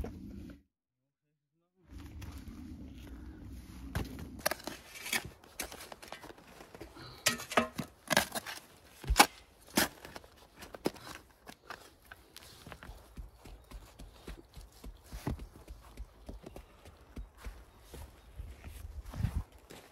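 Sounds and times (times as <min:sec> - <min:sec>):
hand tool digging into gravel: 0:04.4 - 0:06.3.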